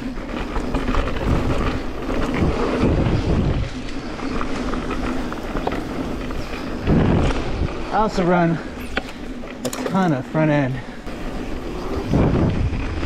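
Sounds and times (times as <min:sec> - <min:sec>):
bike rattling clicks: 0:00.0 - 0:07.8, 0:08.7 - 0:10.5
wind buffeting microphone: 0:00.0 - 0:09.5, 0:11.0 - 0:13.0
bike tyres rolling on dirt: 0:00.0 - 0:13.0.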